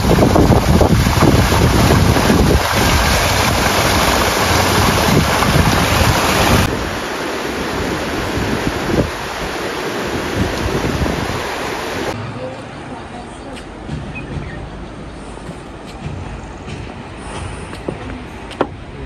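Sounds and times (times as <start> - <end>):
small waterfall splashing: 0.0 - 12.2.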